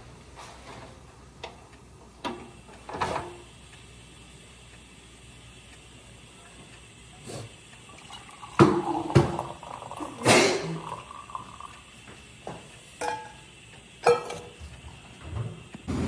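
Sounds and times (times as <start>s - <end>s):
tea pouring splash: 7.9s - 11.8s.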